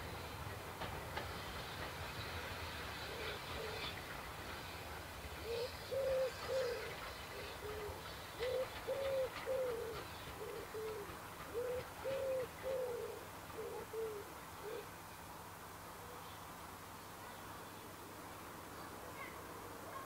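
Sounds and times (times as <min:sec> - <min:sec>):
wood pigeon cooing: 0:05.4 - 0:14.9.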